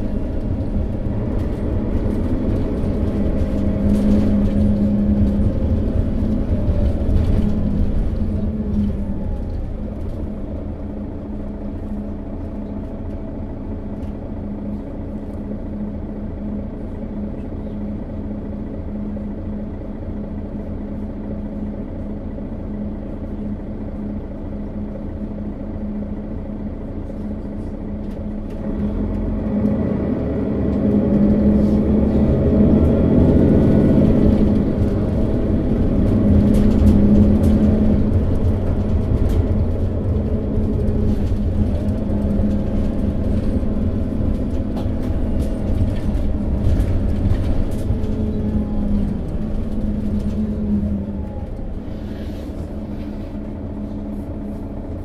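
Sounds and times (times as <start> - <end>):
light rattles and clicks: 0.0 - 10.7, 32.8 - 51.9
bus diesel engine humming: 0.0 - 55.0.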